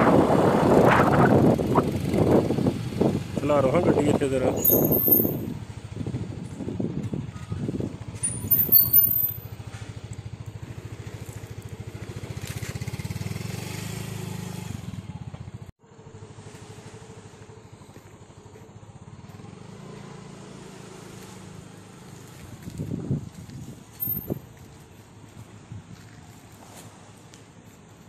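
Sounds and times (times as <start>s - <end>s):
small engine running: 4.6s - 15.2s, 15.9s - 22.5s.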